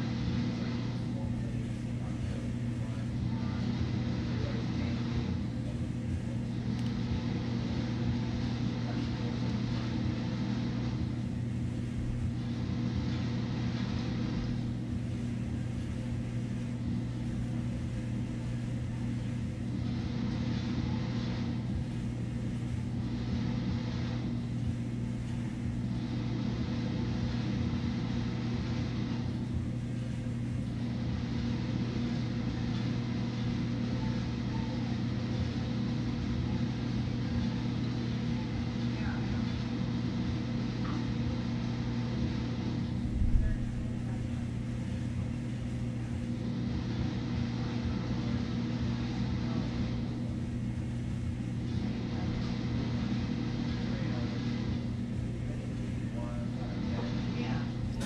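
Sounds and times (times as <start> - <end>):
low machine hum: 0.0 - 58.0.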